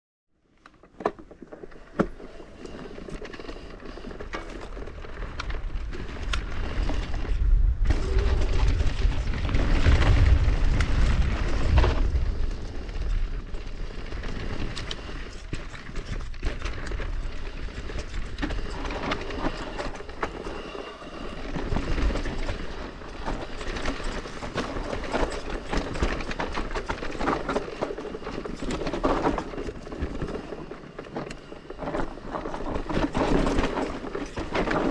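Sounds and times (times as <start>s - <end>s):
bike rattling and clicking: 0.6s - 34.9s
bike tyres rolling over dirt: 0.7s - 34.9s
low rumble: 6.2s - 15.4s.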